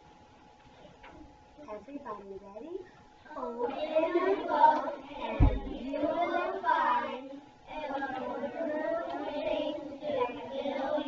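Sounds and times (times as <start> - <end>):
young children singing: 3.3 - 11.0.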